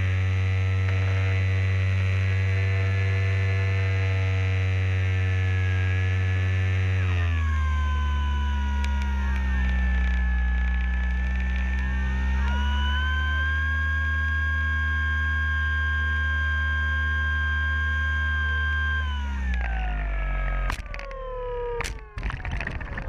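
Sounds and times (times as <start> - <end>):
model plane motor and propeller: 0.0 - 22.1.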